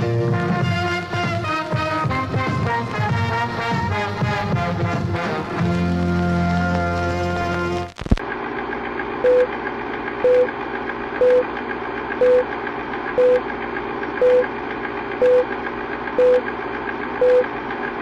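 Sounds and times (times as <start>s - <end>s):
short beeps: 9.2s - 9.5s, 10.2s - 10.5s, 11.2s - 11.5s, 12.2s - 12.5s, 13.2s - 13.4s, 14.2s - 14.5s, 15.2s - 15.5s, 16.2s - 16.4s, 17.2s - 17.5s.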